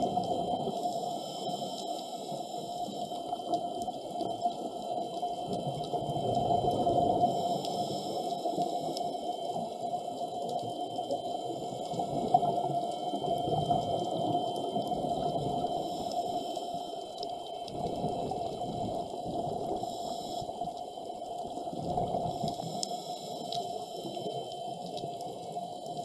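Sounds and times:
steady hum: 0:00.0 - 0:26.0
scuba regulator breathing: 0:07.0 - 0:09.5, 0:14.1 - 0:17.2, 0:19.4 - 0:20.9.

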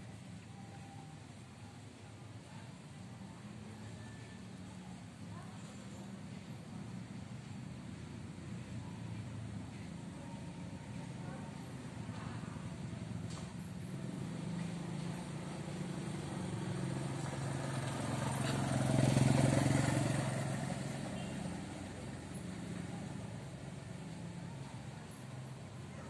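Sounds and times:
vehicle engine passing by: 0:10.6 - 0:26.0.

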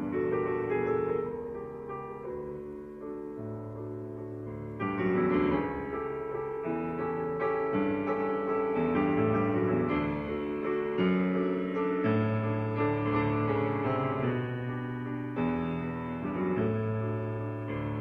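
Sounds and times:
solo piano chords: 0:00.0 - 0:18.0.

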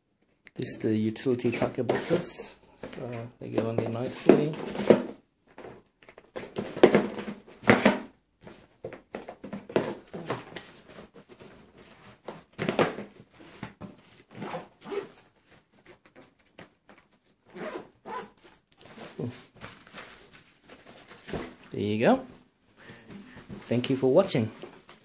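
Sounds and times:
plastic boxes clattering: 0:03.5 - 0:08.1
zipper being pulled shut: 0:14.3 - 0:15.1, 0:17.5 - 0:19.2.

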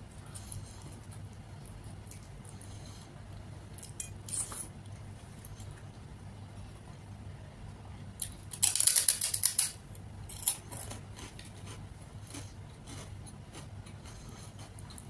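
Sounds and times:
crunching crisp snack: 0:08.2 - 0:15.0.

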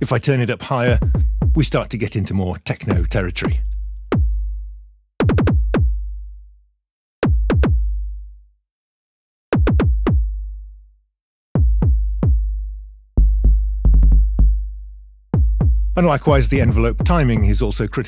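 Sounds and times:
synthesized kick drum thumps: 0:00.9 - 0:02.0, 0:02.9 - 0:06.3, 0:07.2 - 0:08.2, 0:09.5 - 0:10.6, 0:11.6 - 0:17.8.

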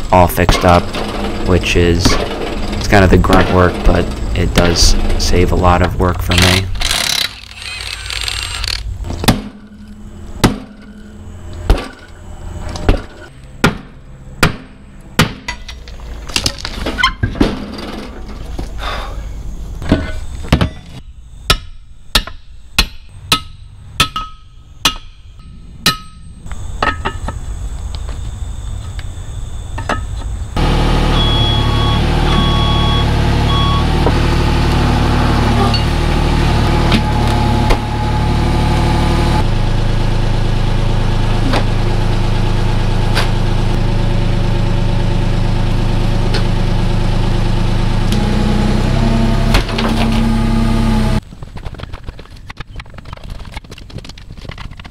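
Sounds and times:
excavator engine running: 0:00.0 - 0:20.4, 0:26.4 - 0:54.9
hammer clanging on steel rim: 0:22.2 - 0:27.2
short beeps: 0:31.1 - 0:33.9.

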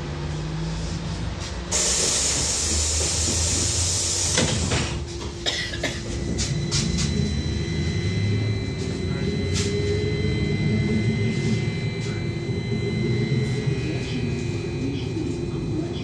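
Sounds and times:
high electric drive whine: 0:00.0 - 0:16.0
pneumatic door air hiss: 0:01.7 - 0:05.0.

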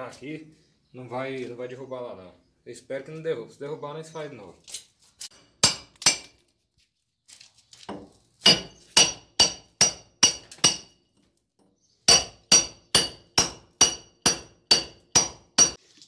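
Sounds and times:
hammer striking steel chisel: 0:05.3 - 0:06.3, 0:08.4 - 0:11.0, 0:12.1 - 0:15.8.

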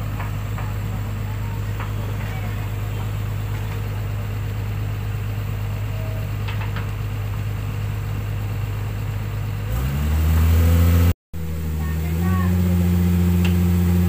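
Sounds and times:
diesel engine revving: 0:00.0 - 0:14.0.

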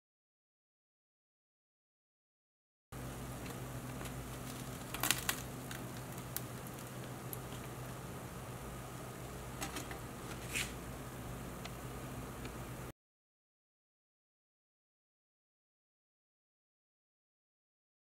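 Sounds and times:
steady low hum: 0:03.0 - 0:12.9.

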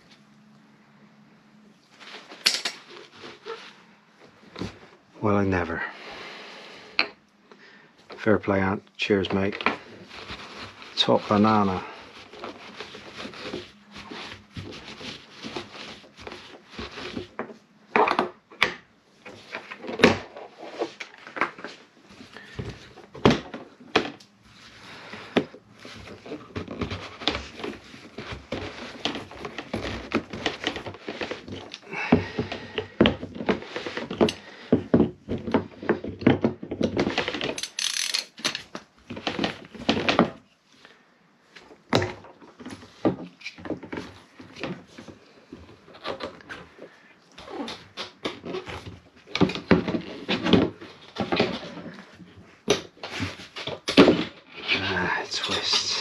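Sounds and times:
hands handling plastic parts: 0:01.9 - 0:03.8, 0:09.3 - 0:40.4.

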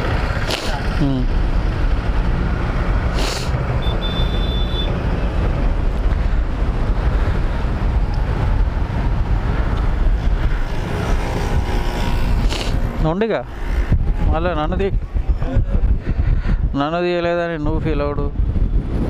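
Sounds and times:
traffic passing: 0:00.0 - 0:16.6
wind buffeting microphone: 0:04.9 - 0:19.0.

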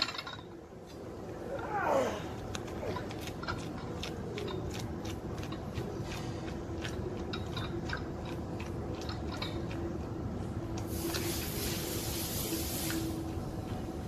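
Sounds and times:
rushing hiss: 0:10.9 - 0:13.4.

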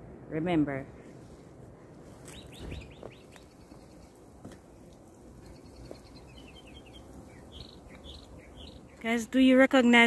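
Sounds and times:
small bird chirping: 0:02.2 - 0:04.3, 0:05.0 - 0:09.4.

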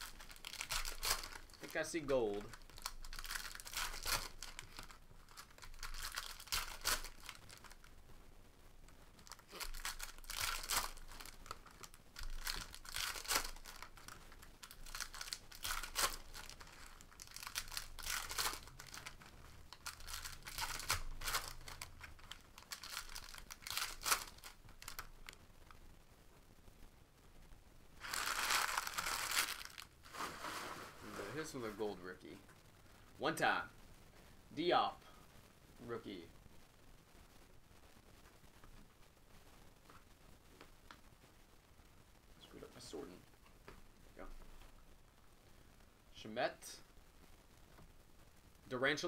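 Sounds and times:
foil wrappers crinkling and tearing: 0:00.0 - 0:07.9, 0:09.2 - 0:25.4, 0:28.0 - 0:30.7.

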